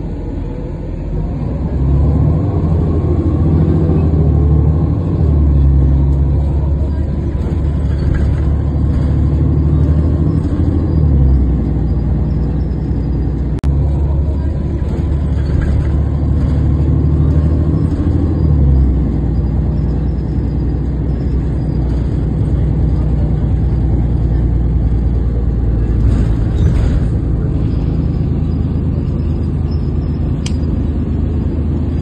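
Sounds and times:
bus rumbling: 0.0s - 32.0s
sharp click: 30.4s - 30.8s.

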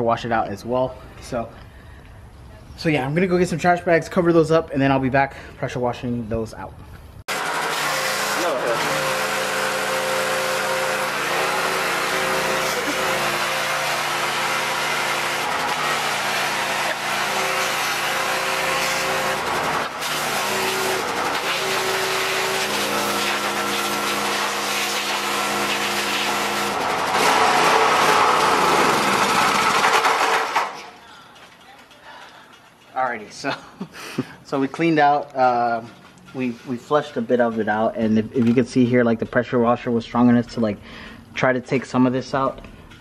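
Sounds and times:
pressure washer motor humming: 7.3s - 30.8s.

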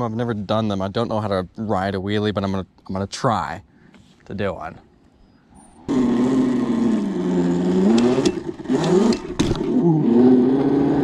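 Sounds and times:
electric motor whining: 5.9s - 11.0s.

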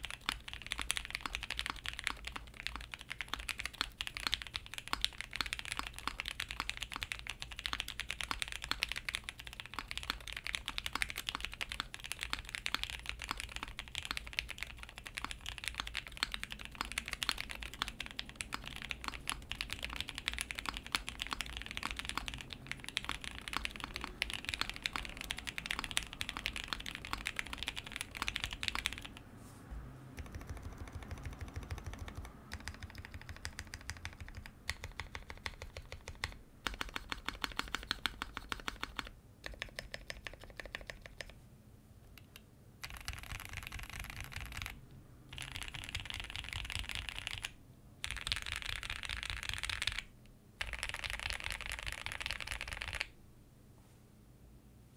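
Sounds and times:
keyboard modifier key presses: 0.0s - 29.2s, 30.2s - 41.4s, 42.1s - 53.1s
mechanical keyboard typing: 0.0s - 29.2s, 30.2s - 41.4s, 42.2s - 53.1s.

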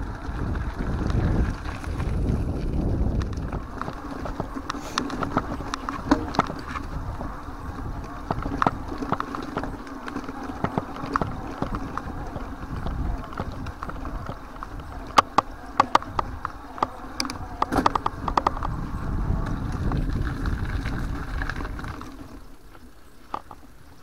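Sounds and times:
bike rattling and clicking: 0.0s - 24.0s
wind rumble on microphone: 0.0s - 24.0s
bike knocks: 3.1s - 18.9s.

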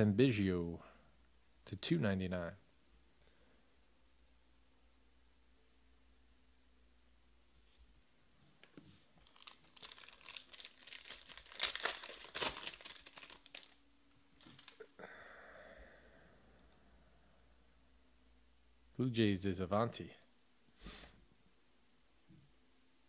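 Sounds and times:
foil wrapper tearing and crinkling: 9.2s - 13.8s, 14.4s - 14.8s.

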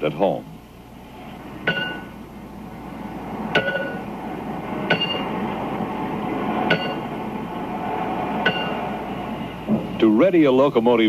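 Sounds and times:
steady hissing rumble: 0.0s - 11.0s
metal clanking on metal: 1.6s - 2.2s, 3.5s - 4.1s, 4.9s - 5.3s, 6.7s - 7.1s, 8.4s - 8.8s.

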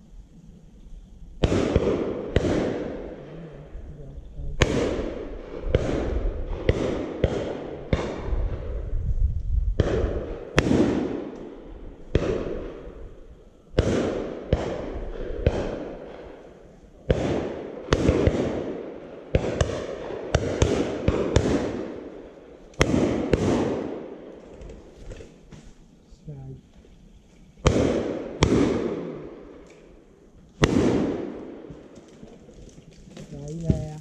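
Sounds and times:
shotgun shots echoing: 1.4s - 3.2s, 4.6s - 8.6s, 9.8s - 13.0s, 13.8s - 16.4s, 17.1s - 24.3s, 27.6s - 30.0s, 30.6s - 32.0s.

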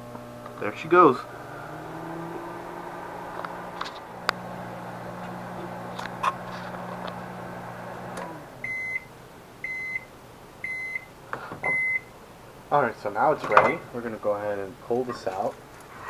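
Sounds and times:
microwave oven humming: 0.0s - 12.1s
microwave beeps: 8.6s - 12.1s, 13.5s - 13.9s.

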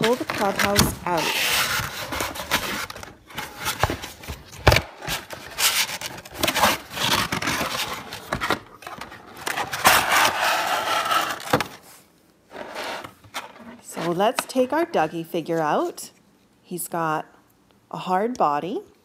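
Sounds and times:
cardboard scraping plastic: 0.0s - 14.7s.

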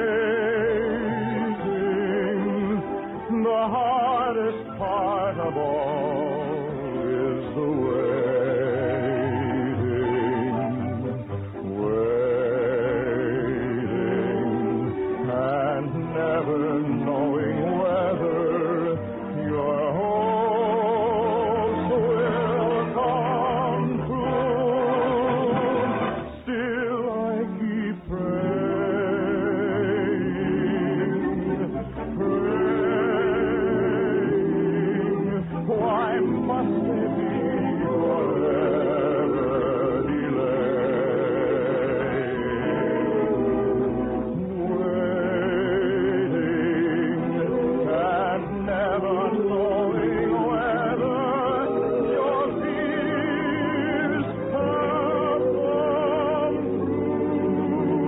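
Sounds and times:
orchestral music with wordless voices: 0.0s - 58.0s.

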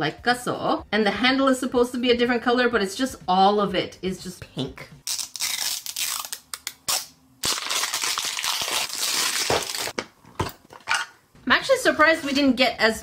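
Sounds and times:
plastic wrap crinkling and tearing: 5.0s - 10.0s.

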